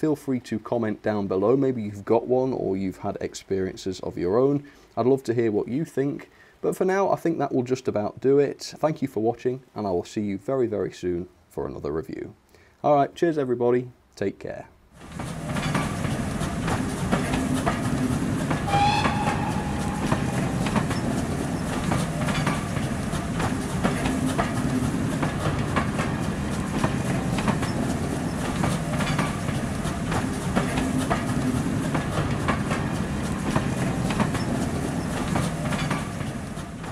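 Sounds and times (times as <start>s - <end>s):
train coaches rumbling: 15.0s - 36.9s
wheels clicking over rail joints: 15.0s - 36.9s
brief high tone: 18.7s - 21.1s.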